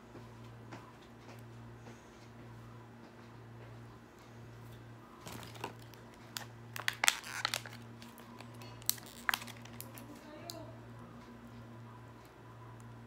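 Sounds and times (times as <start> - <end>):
plastic packaging crinkling: 5.2 - 10.6.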